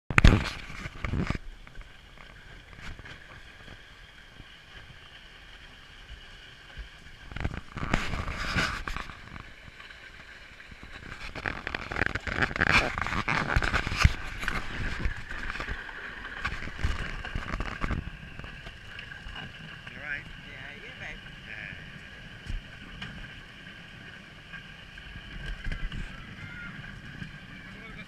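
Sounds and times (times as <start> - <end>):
wooden runners scraping asphalt: 7.4 - 10.0, 10.8 - 27.8.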